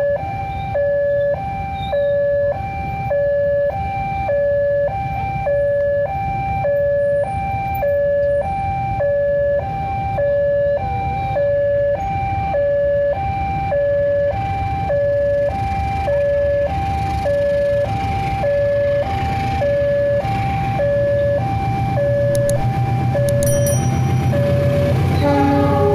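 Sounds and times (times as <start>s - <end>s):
level crossing two-tone bell: 23.2s - 24.9s.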